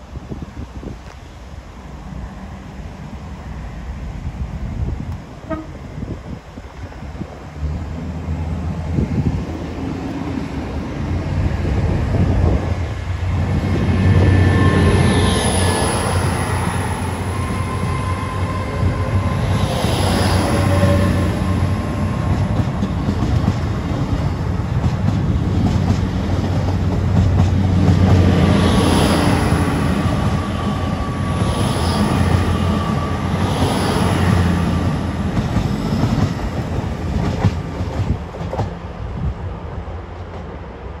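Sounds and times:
train wheels rumbling on rail: 0.0 - 41.0.

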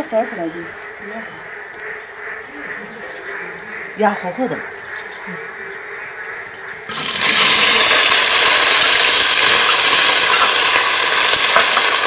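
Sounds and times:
hot oil sizzling in a wok: 6.9 - 12.0.

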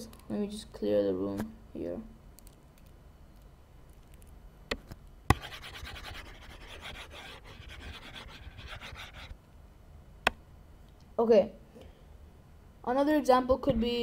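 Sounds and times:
mouse rubbing across desk: 5.4 - 9.4.

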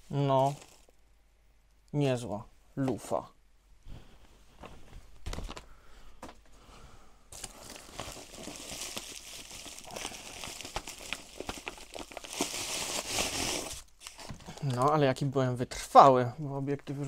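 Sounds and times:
bubble wrap crinkling: 0.1 - 1.0, 7.3 - 15.0.

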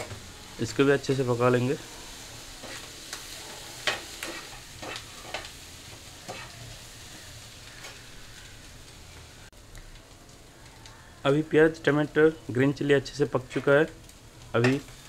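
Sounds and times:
food sizzling in oil: 0.0 - 15.0
spatula scraping against pan: 2.6 - 5.5, 6.2 - 6.6.

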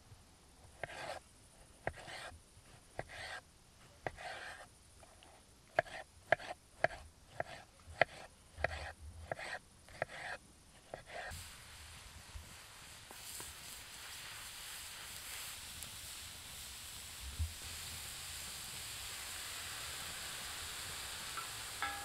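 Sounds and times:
knife slicing tomato: 0.8 - 1.2, 1.8 - 3.4, 5.7 - 11.3.

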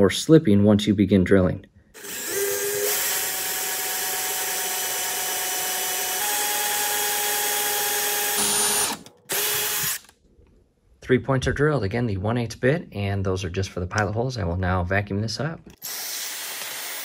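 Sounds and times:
power drill boring into wood: 2.0 - 10.1, 15.8 - 17.0.

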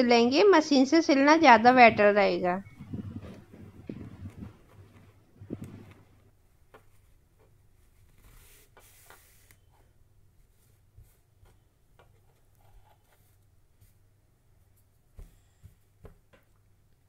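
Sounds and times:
low steady hum: 0.0 - 8.2
cloth rustling on a tabletop: 1.4 - 16.5.

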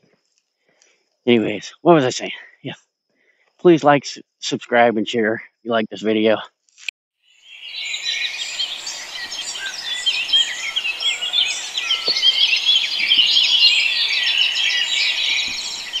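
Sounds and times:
songbirds chirping and singing: 7.4 - 16.0.

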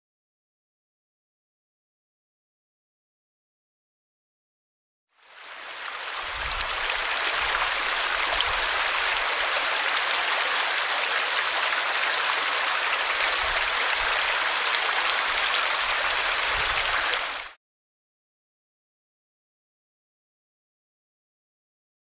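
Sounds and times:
stream splashing over rocks: 5.2 - 17.6.

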